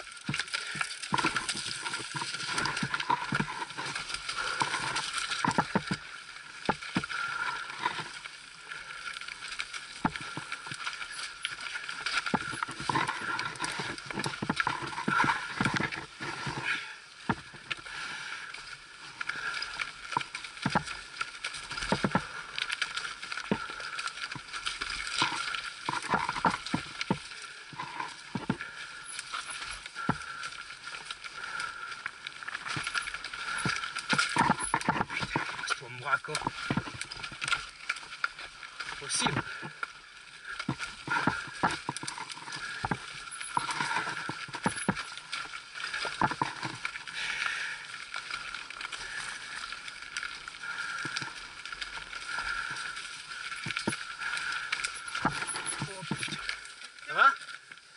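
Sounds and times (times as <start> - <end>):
bike tyres rushing over dirt: 0.0 - 57.9
bike knocks and rattles: 32.6 - 35.6, 40.6 - 45.1.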